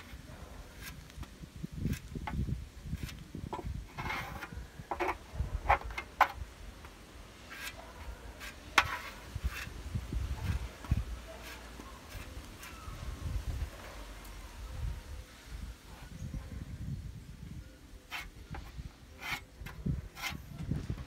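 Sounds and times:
spreader scraping filler on panel: 2.9s - 6.2s, 7.4s - 9.8s, 10.4s - 13.0s, 18.1s - 20.6s.

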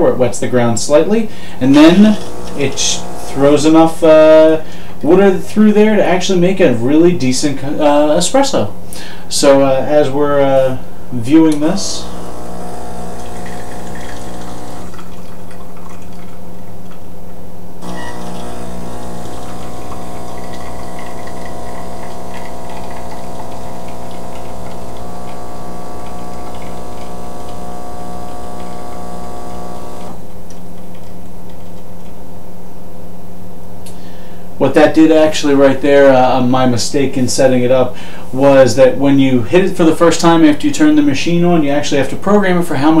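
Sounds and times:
espresso machine pump humming: 1.6s - 4.0s, 11.5s - 16.3s, 17.8s - 32.2s.

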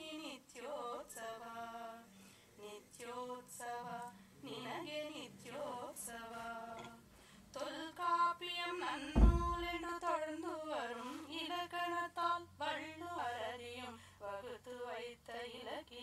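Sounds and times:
low thump: 9.2s - 9.8s.

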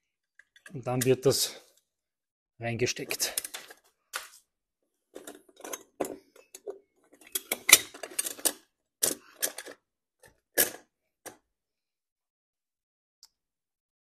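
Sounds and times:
metal clinks and knocks: 5.2s - 9.8s.

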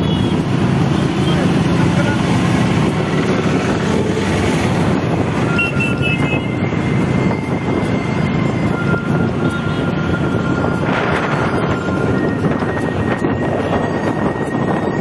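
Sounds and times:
motorbike engine: 0.0s - 13.9s
traffic passing: 0.0s - 15.0s
wind rush: 0.0s - 15.0s
held high tone: 5.3s - 15.0s
short high beeps: 5.5s - 6.5s.

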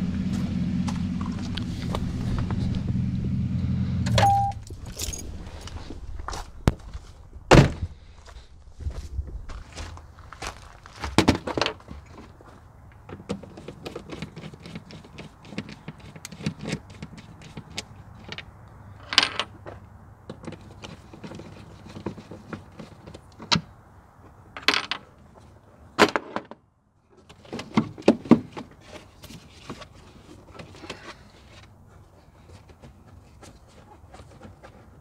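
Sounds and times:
sharp clicks and clatters of plastic: 13.0s - 19.5s.

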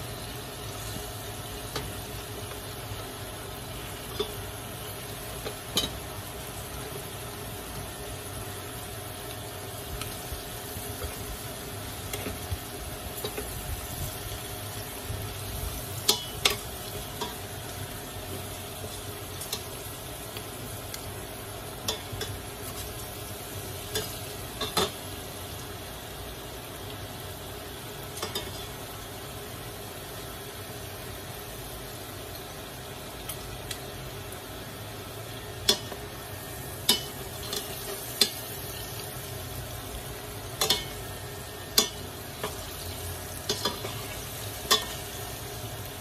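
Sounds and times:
metal tongs clinking on pot: 21.8s - 22.4s, 23.9s - 25.0s, 28.2s - 28.7s, 35.6s - 36.0s, 36.8s - 38.4s, 40.5s - 41.0s, 41.7s - 42.6s, 43.5s - 45.0s.

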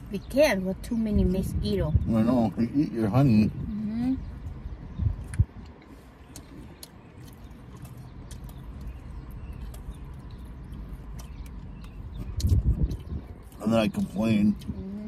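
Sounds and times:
people chewing food: 4.2s - 15.0s.

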